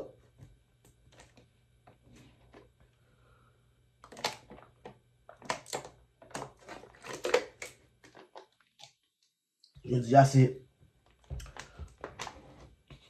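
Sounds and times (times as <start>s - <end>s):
plastic bottle crinkling: 4.0s - 9.0s, 11.0s - 12.7s.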